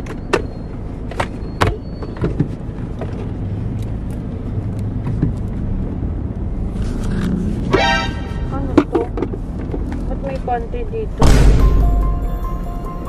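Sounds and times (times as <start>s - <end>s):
car engine rumble from cabin: 0.0s - 7.8s, 8.5s - 13.0s.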